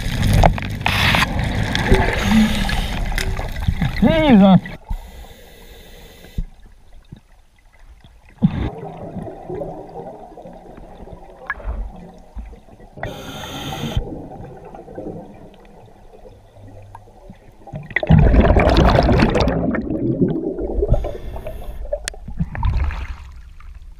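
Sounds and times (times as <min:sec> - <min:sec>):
exhale bubbling underwater: 0:01.3 - 0:04.0, 0:08.4 - 0:23.6
regulator hiss on inhale: 0:02.1 - 0:03.2, 0:04.8 - 0:06.6, 0:13.0 - 0:14.0, 0:20.9 - 0:21.9.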